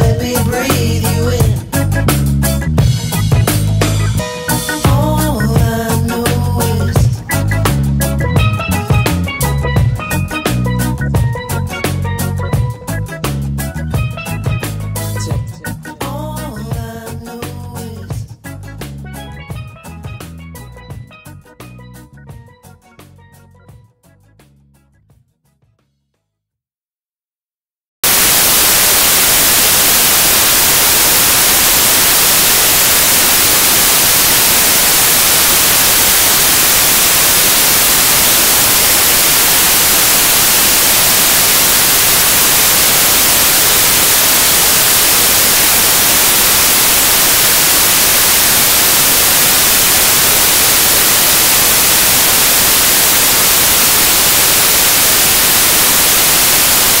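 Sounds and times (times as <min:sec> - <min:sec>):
static hiss: 0:28.0 - 0:57.0.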